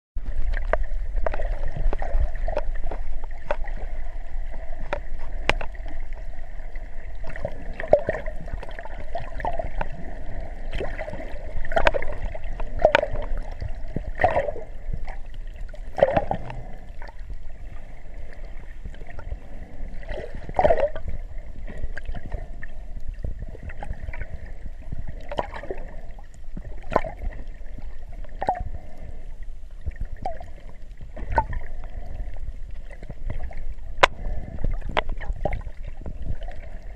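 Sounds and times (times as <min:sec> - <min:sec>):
muffled water gurgling underwater: 0:00.2 - 0:36.9
steady hum: 0:00.2 - 0:36.9
sharp clicks and pops: 0:04.8 - 0:05.9, 0:34.0 - 0:34.2.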